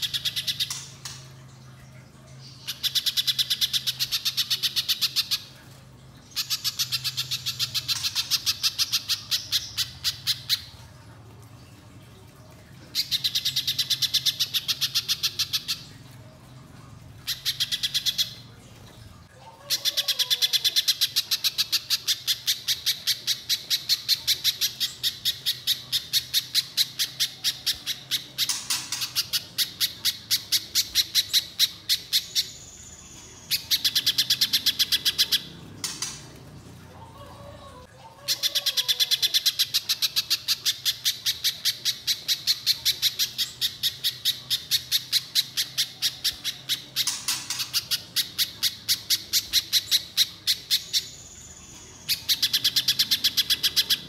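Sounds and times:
bird singing rapid repeated notes: 0.0 - 1.3, 20.8 - 36.3, 38.8 - 54.0.

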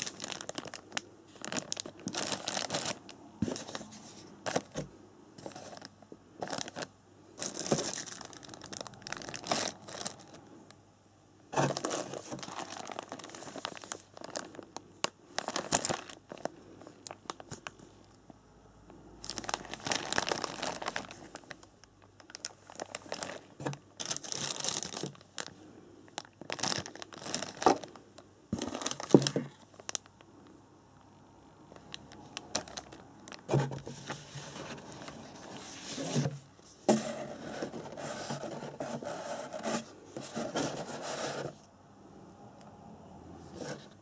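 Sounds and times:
plastic bags crinkling: 0.0 - 4.8, 5.4 - 10.5, 11.6 - 17.8, 19.2 - 30.2, 31.7 - 36.4.

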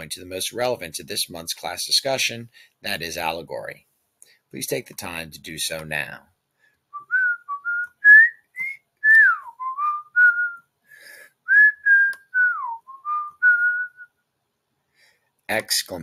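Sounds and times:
person whistling a tune: 6.9 - 14.1.

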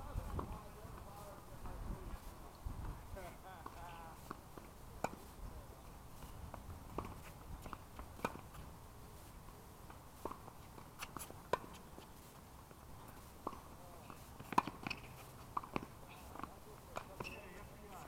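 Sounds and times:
tennis ball bouncing: 10.2 - 11.8, 13.4 - 17.8
rackets striking tennis ball: 13.0 - 18.0.

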